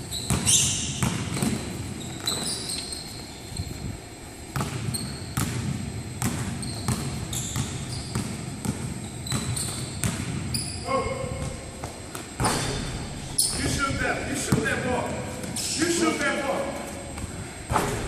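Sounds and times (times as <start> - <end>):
sneaker squeaks: 0.0 - 18.0
basketball bouncing on wooden floor: 0.3 - 2.5, 4.6 - 10.5.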